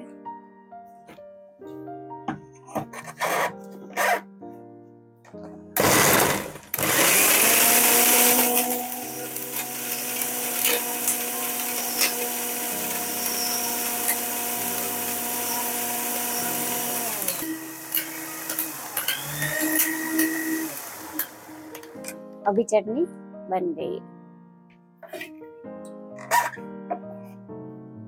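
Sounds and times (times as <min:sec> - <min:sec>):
motor winding down: 0:05.8 - 0:21.9
mixer grinder whirring: 0:05.8 - 0:22.0.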